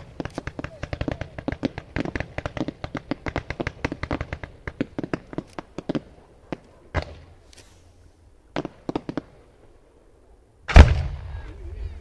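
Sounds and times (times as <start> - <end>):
fireworks cracking and banging: 0.0 - 7.8, 8.5 - 9.4.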